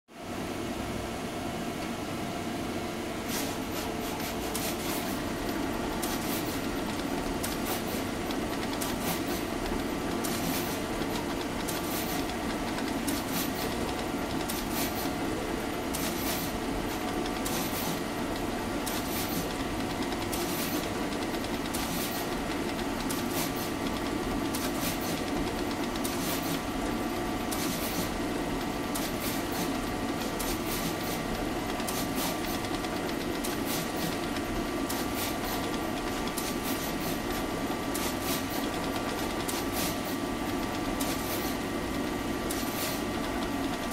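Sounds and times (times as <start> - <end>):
machine mechanical hum: 0.1 - 43.9.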